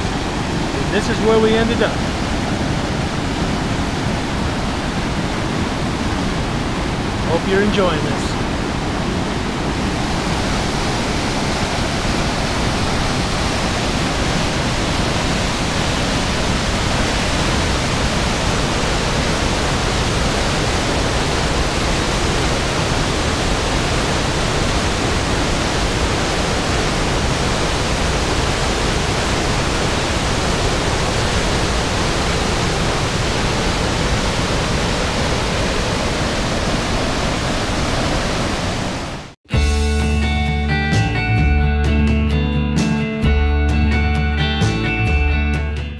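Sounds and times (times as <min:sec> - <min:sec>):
waterfall rushing: 0:00.0 - 0:39.4.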